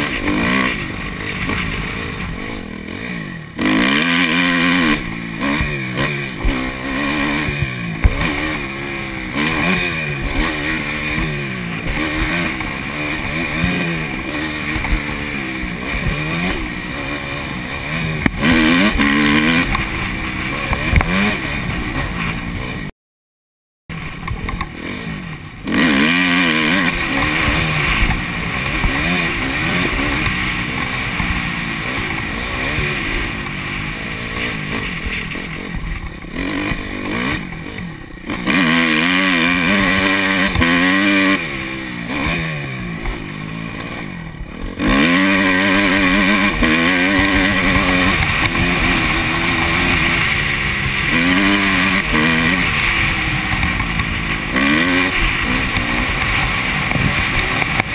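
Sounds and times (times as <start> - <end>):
dirt bike engine revving: 0.0 - 22.9, 23.9 - 57.9.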